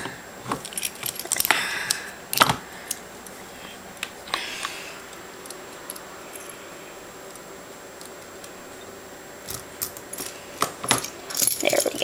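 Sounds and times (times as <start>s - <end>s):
keys jingling: 0.6s - 1.5s, 9.4s - 12.0s.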